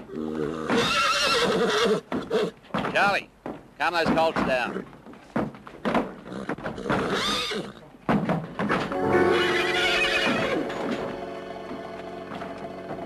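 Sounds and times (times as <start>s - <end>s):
horses neighing and whinnying: 0.0s - 2.7s, 4.4s - 5.1s, 5.9s - 7.9s, 8.7s - 13.0s
music with long held notes: 8.9s - 13.0s.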